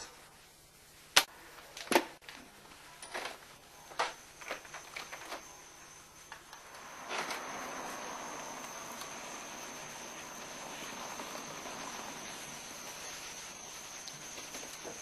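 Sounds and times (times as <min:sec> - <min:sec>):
crickets chirping: 0:03.2 - 0:15.0.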